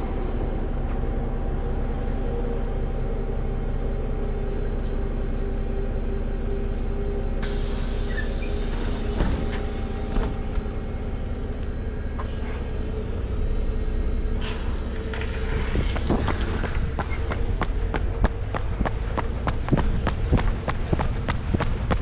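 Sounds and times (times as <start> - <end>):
bus engine idling: 0.0 - 22.0
running footsteps: 15.2 - 22.0.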